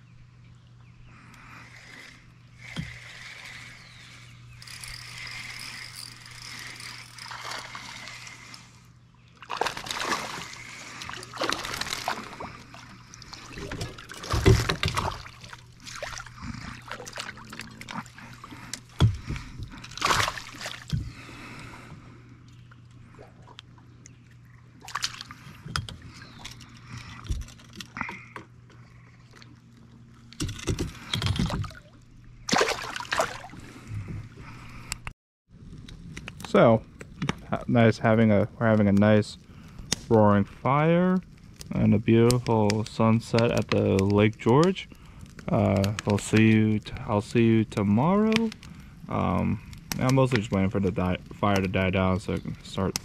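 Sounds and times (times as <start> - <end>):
water splashing and sloshing: 1.4 - 35.1.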